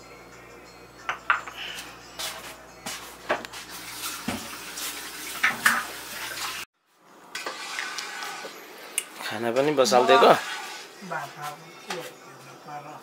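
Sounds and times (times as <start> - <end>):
dishes and utensils clinking: 1.0 - 4.6, 5.4 - 6.0.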